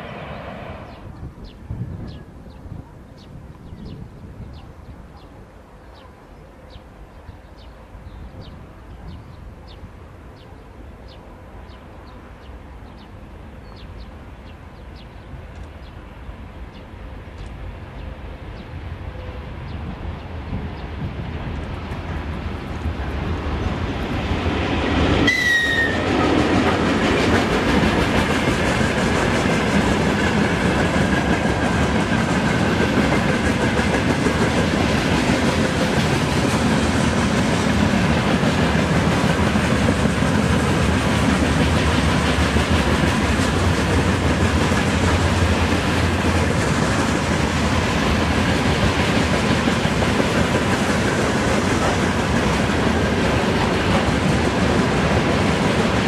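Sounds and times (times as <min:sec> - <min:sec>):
train wheels clattering on rails: 0:21.5 - 0:56.0.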